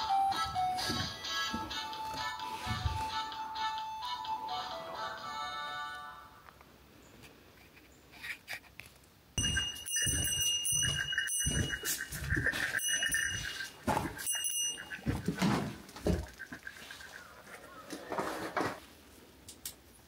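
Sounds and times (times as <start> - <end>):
footsteps on wooden boards: 9.4 - 16.9
wood creaking and squealing: 9.4 - 18.8.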